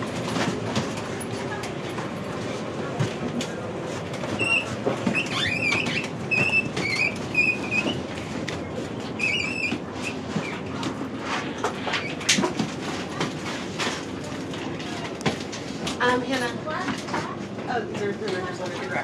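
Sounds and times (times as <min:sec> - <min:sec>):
wheeled suitcase rolling: 0:00.0 - 0:19.0
short high squeaks: 0:04.4 - 0:08.0.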